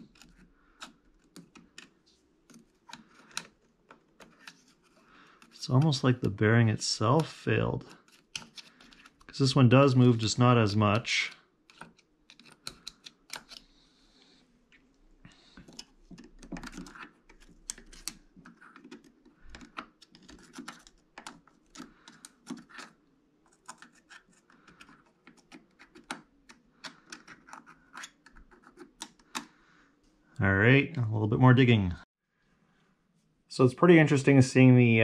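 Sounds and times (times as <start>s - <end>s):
metallic clicks and scrapes: 0.0s - 1.9s, 6.6s - 10.3s, 11.2s - 13.8s, 15.4s - 29.5s.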